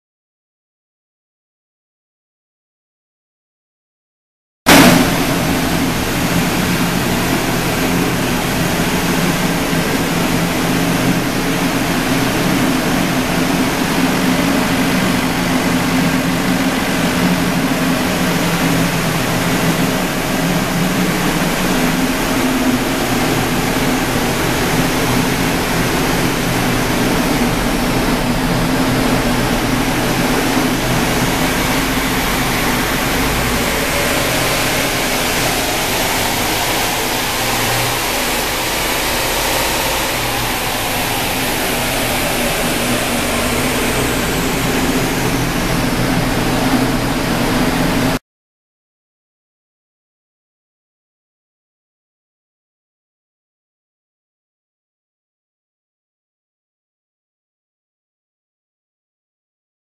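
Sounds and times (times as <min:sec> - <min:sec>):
deep rumble: 0:04.7 - 0:48.2
engine hum: 0:04.7 - 0:48.2
loud rushing noise: 0:04.7 - 0:48.2.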